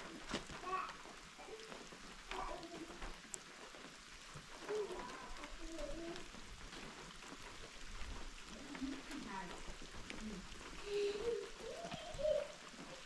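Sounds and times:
steady rain falling: 0.0s - 13.0s
faint voices talking: 8.5s - 13.0s.

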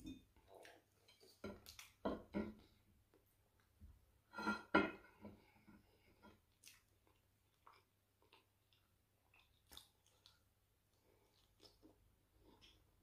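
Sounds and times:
wet chewing noises: 0.4s - 2.0s, 6.3s - 13.0s.

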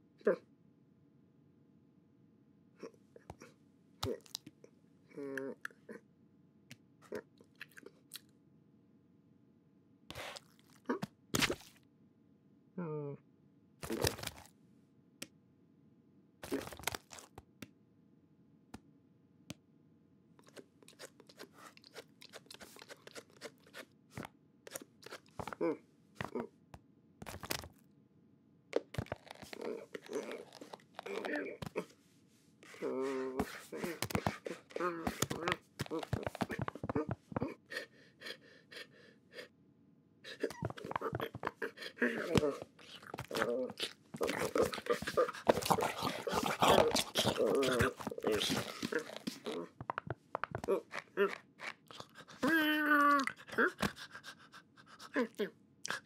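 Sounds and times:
cat crunching dry food: 16.5s - 17.3s, 20.4s - 23.8s, 42.7s - 52.3s
person gasping and grunting: 29.5s - 32.0s, 32.7s - 39.5s, 40.3s - 49.8s, 50.5s - 56.0s.

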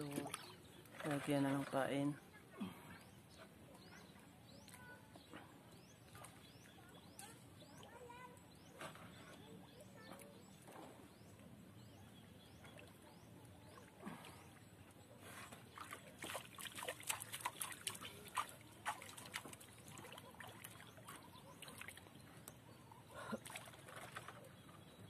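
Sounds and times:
small splashes and drips: 0.0s - 1.8s, 15.3s - 22.6s, 23.2s - 24.5s
water sloshing and trickling: 0.0s - 25.0s.

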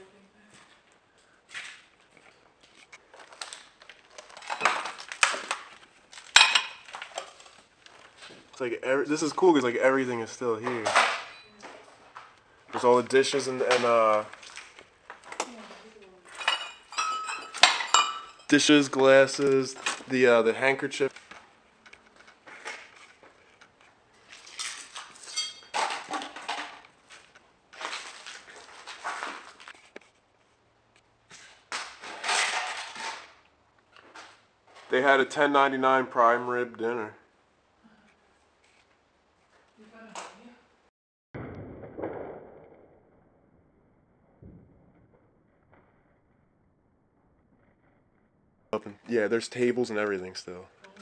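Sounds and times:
crockery crunching and clinking: 2.2s - 8.2s, 13.4s - 20.1s, 22.0s - 29.8s
footsteps crunching on debris: 21.0s - 30.5s.

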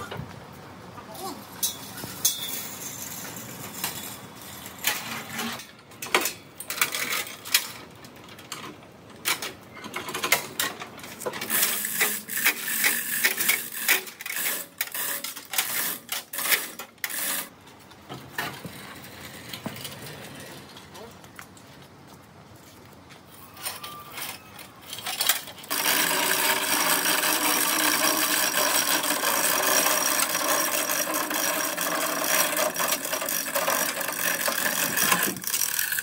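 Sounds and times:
hard objects clanking and rattling: 23.7s - 36.0s.

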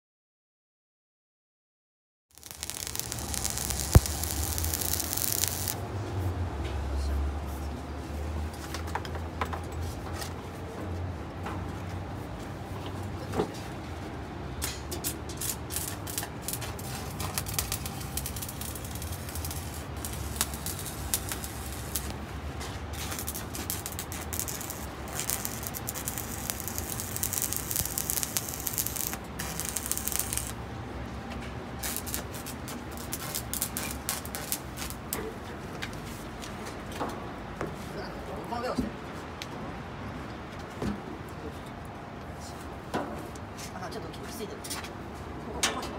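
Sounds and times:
welding arc crackling: 2.3s - 5.8s, 15.0s - 30.6s, 31.8s - 35.3s.

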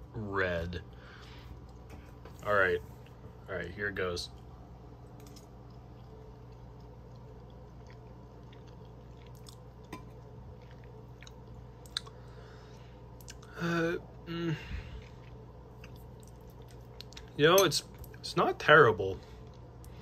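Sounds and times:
person chewing pasta: 5.0s - 13.6s, 14.7s - 18.2s, 19.4s - 20.0s
person humming mm: 13.5s - 14.7s.

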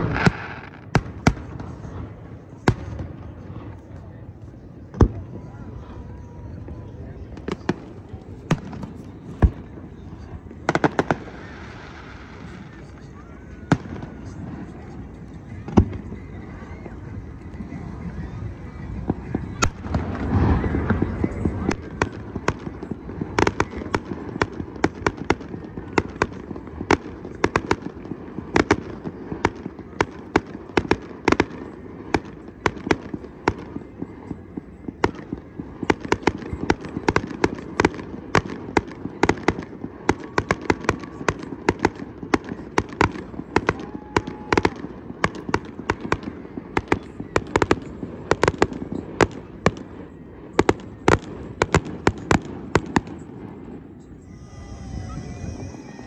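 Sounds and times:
fireworks bursting with sharp bangs: 0.0s - 56.0s
low background noise: 0.0s - 56.0s.

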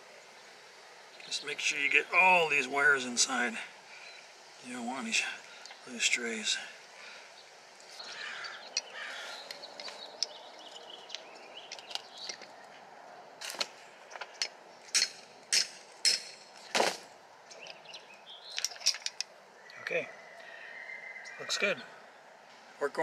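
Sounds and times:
faint handling sounds: 7.8s - 12.8s.

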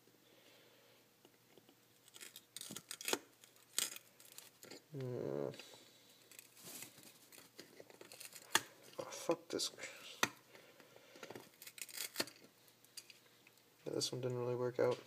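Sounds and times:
person grunting: 4.9s - 5.6s.

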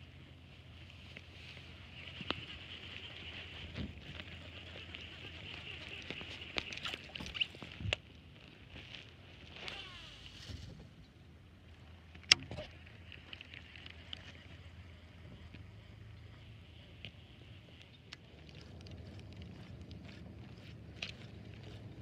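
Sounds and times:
reel whirring: 0.8s - 10.6s, 11.8s - 22.0s.

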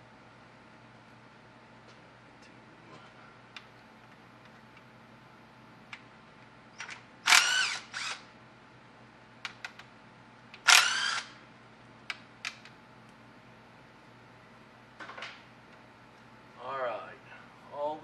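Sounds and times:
power ratchet whirring: 6.8s - 8.3s, 10.6s - 11.4s.

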